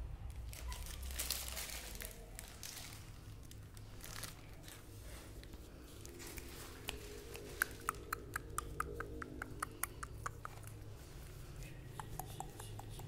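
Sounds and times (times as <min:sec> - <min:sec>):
puppies' ticks and squeaks: 0:00.6 - 0:01.0, 0:06.1 - 0:11.0, 0:11.6 - 0:13.0.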